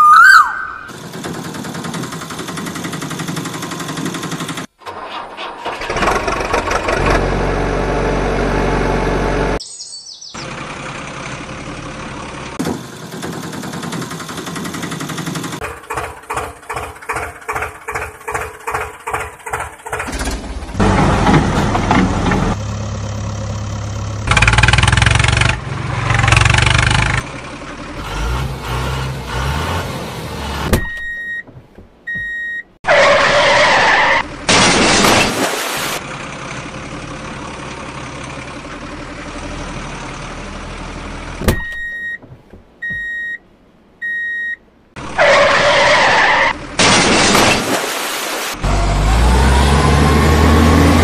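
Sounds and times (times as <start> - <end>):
heavy truck engine running: 0.9 - 9.6, 10.4 - 32.7, 36.0 - 43.1
reversing alarm beeping: 30.8 - 31.4, 32.1 - 32.7, 41.6 - 42.2, 42.8 - 43.4, 44.0 - 44.6.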